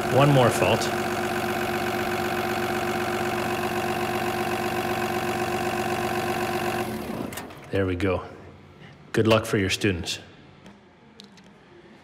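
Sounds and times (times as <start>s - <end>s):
diesel engine idling with misfire: 0.0s - 7.6s.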